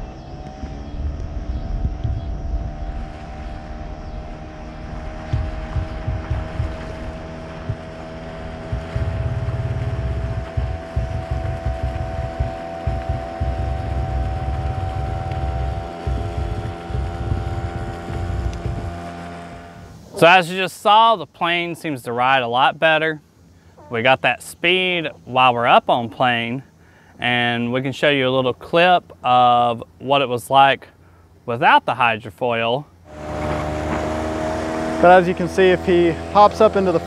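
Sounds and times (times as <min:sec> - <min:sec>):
wind buffeting microphone: 0:00.0 - 0:20.1
outboard engine drone: 0:00.0 - 0:27.7, 0:32.9 - 0:37.0.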